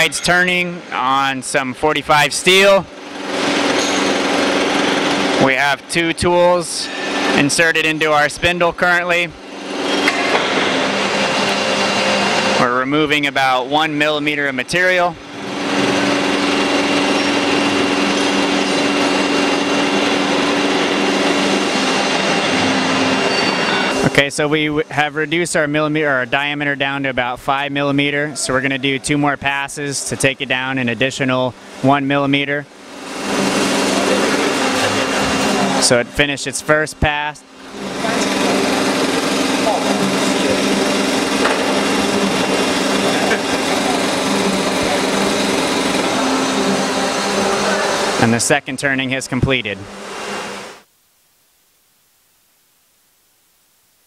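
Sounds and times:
turning machine cutting metal: 0.0s - 1.6s, 2.2s - 27.2s, 27.8s - 50.8s.

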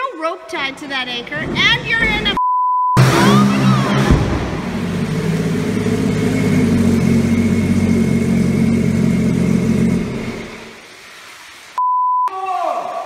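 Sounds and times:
jet boat engine running hard: 3.0s - 10.8s.

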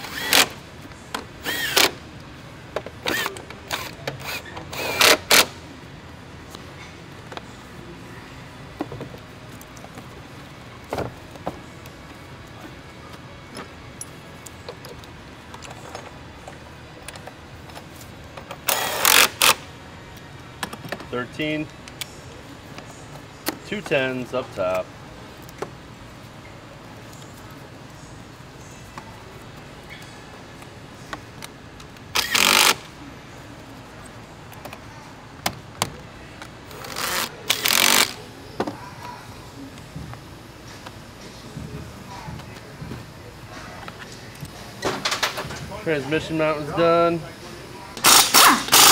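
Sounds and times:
handling noise bursts: 28.9s - 33.0s, 34.5s - 38.8s, 48.0s - 48.9s.

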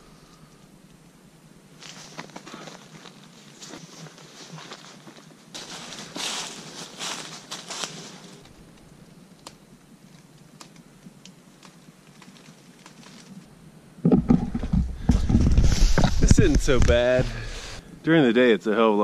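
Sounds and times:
crunching dry leaves: 1.8s - 13.5s.

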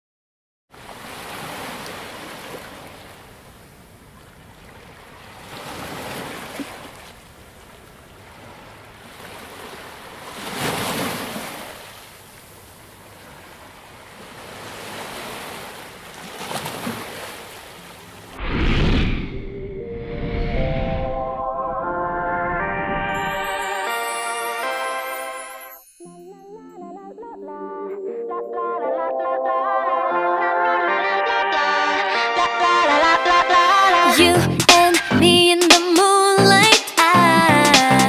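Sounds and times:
waves breaking: 0.8s - 19.3s
music: 21.0s - 38.0s.

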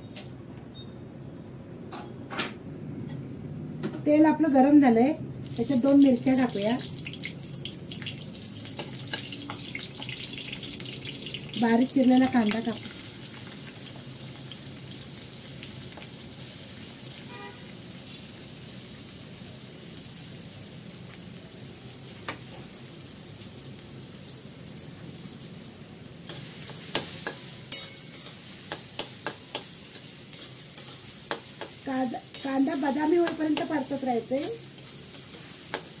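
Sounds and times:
onions sizzling in hot oil: 5.4s - 36.0s.

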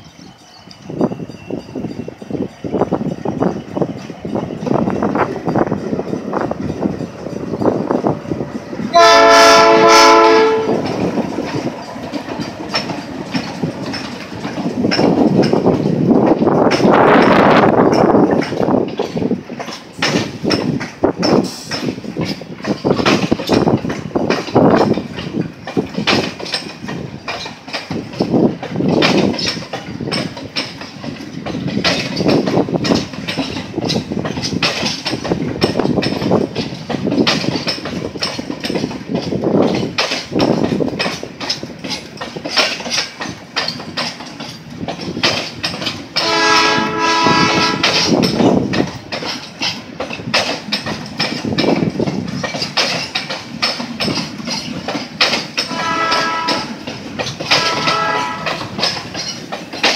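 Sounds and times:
train wheels clattering on rails: 0.0s - 59.9s
train horn: 8.9s - 11.0s, 46.2s - 48.1s, 55.7s - 56.8s, 57.5s - 58.7s.

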